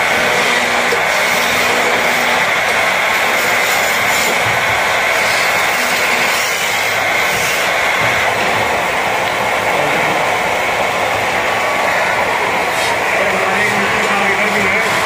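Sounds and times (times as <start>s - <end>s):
chisel scraping spinning wood: 0.0s - 8.6s
wood lathe whirring: 0.0s - 15.0s.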